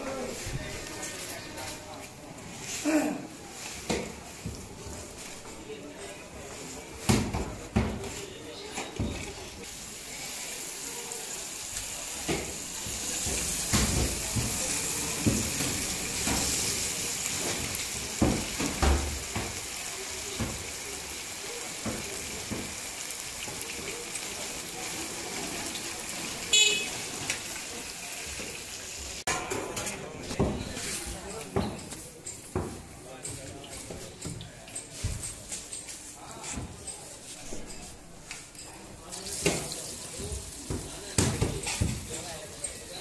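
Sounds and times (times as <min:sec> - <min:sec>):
chicken sizzling in oil: 0:09.2 - 0:29.2, 0:39.1 - 0:43.0.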